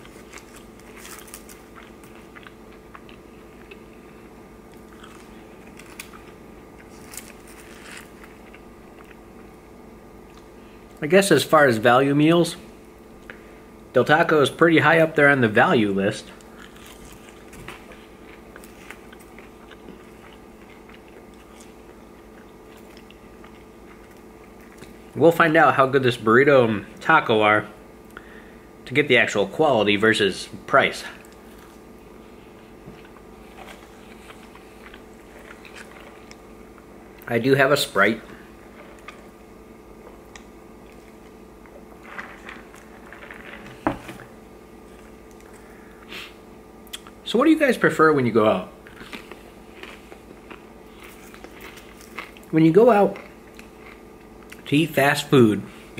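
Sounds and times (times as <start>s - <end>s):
person chewing food: 0.0s - 9.6s, 16.4s - 25.1s, 31.2s - 37.3s, 38.4s - 46.3s, 48.8s - 52.5s, 53.1s - 54.7s
steady low hum: 0.0s - 55.9s.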